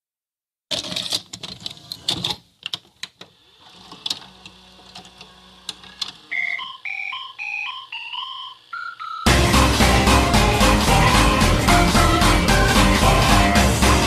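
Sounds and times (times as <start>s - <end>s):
simple melody of high notes: 6.3s - 14.0s.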